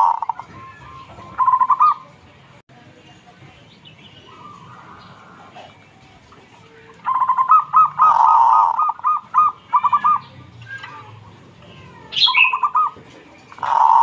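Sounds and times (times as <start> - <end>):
dove cooing: 0.0 - 0.5, 1.3 - 2.0, 4.4 - 6.1, 7.0 - 11.0, 12.2 - 14.0.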